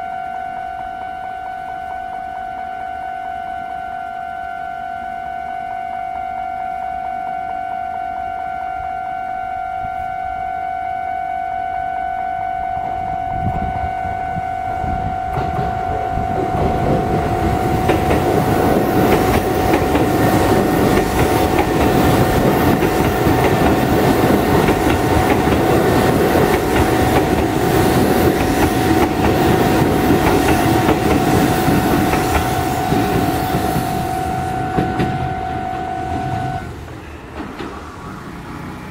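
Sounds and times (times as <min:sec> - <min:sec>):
level crossing warning bell: 0:00.0 - 0:37.6
train wheels clattering over rails: 0:15.3 - 0:38.9.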